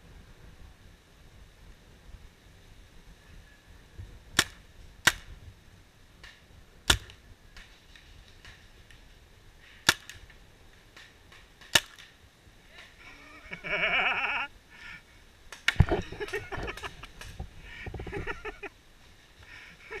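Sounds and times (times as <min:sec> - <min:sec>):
paintball marker shots: 0:04.4 - 0:05.4, 0:06.2 - 0:07.7, 0:09.8 - 0:10.3, 0:11.0 - 0:12.2
person calling out: 0:12.7 - 0:14.6
knocks and rustling: 0:15.6 - 0:18.6.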